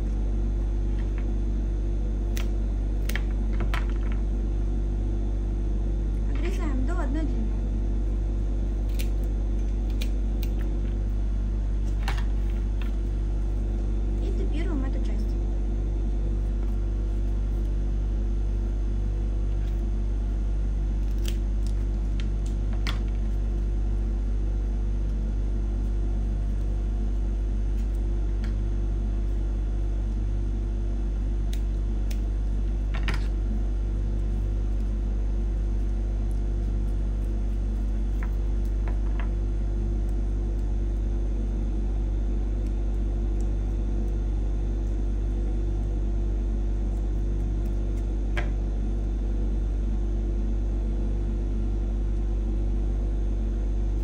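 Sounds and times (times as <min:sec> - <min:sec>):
low electrical hum: 0:00.0 - 0:54.0.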